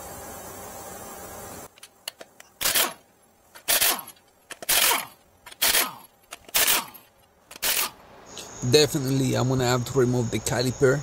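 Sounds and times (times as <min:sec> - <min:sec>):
impact wrench bursts: 0:02.1 - 0:08.0.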